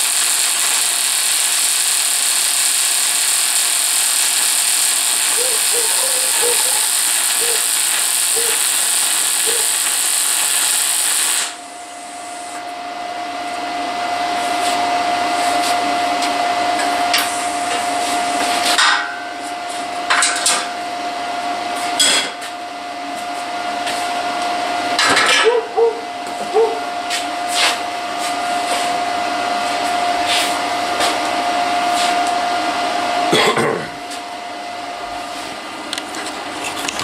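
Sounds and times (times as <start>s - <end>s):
welder arc crackling and hissing: 0.0s - 12.7s, 17.0s - 18.9s
steady whine and hum: 0.0s - 37.0s.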